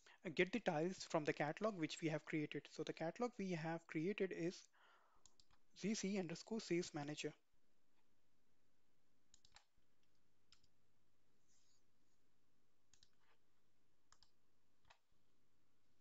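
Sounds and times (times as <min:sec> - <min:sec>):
keyboard and mouse clicks: 0:09.3 - 0:10.7, 0:12.9 - 0:13.4, 0:14.1 - 0:15.0.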